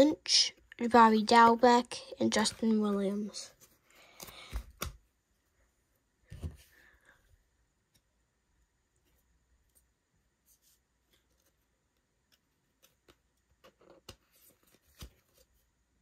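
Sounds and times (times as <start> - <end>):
trading cards being flipped: 4.0 - 5.0, 12.3 - 15.5.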